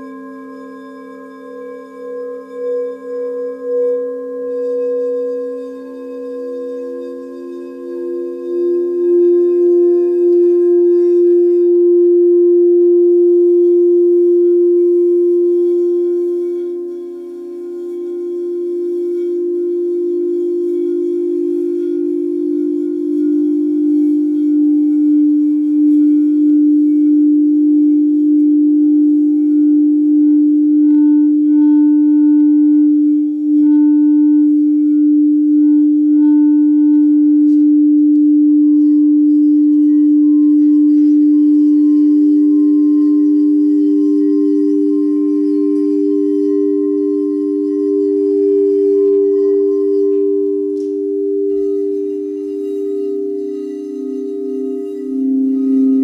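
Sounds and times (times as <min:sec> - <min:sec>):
singing bowls ringing: 0:00.0 - 0:56.0.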